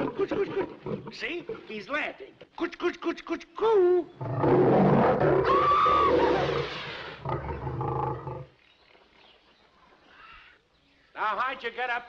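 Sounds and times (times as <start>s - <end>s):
lion roaring: 4.2s - 8.5s.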